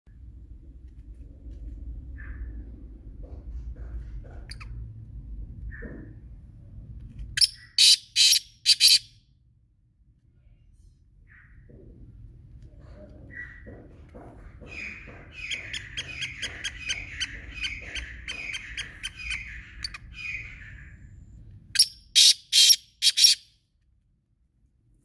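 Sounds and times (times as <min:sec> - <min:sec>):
bird harsh call notes: 0:07.4 - 0:09.1, 0:21.8 - 0:23.5
bird rapid chirping notes: 0:07.4 - 0:09.1, 0:14.7 - 0:21.1, 0:21.8 - 0:23.5.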